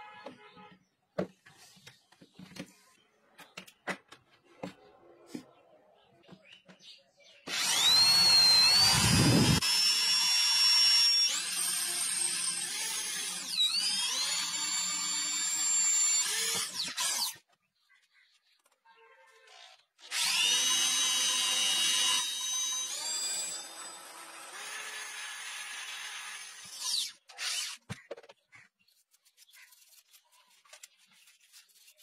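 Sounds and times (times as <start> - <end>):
electric drill whining: 7.5 - 17.4, 20.0 - 27.9.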